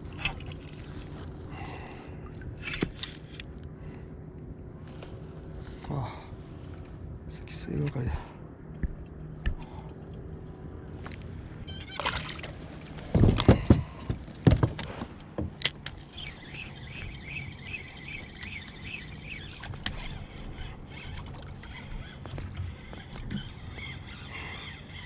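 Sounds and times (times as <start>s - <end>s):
fishing reel whirring: 16.0s - 25.0s.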